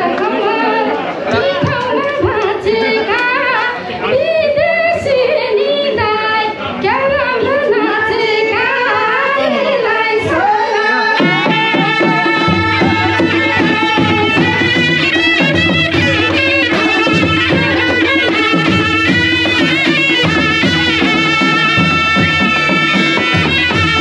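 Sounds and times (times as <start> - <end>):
folk melody bending in pitch: 7.0 - 24.0.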